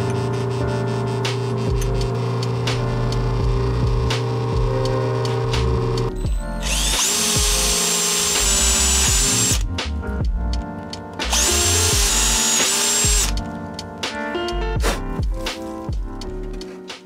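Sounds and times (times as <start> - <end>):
power drill boring into metal: 6.6 - 9.6, 11.3 - 13.3.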